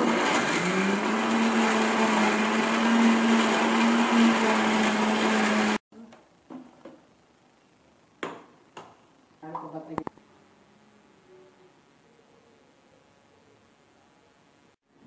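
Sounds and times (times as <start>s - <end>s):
mixer grinder motor whine: 0.0s - 5.8s.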